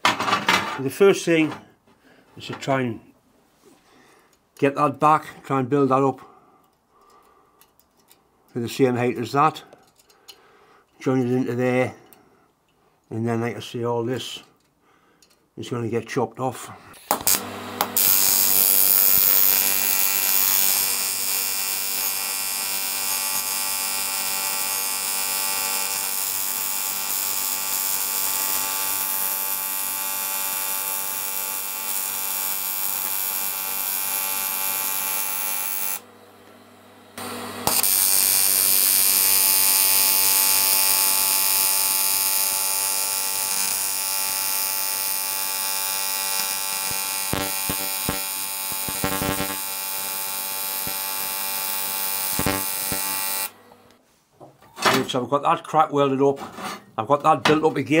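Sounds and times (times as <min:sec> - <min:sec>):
welding arc buzzing: 0:17.1 - 0:54.0.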